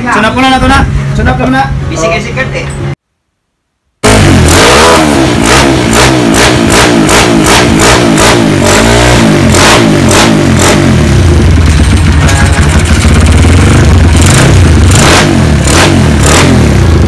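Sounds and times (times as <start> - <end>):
dirt bike engine revving: 4.0 - 17.0.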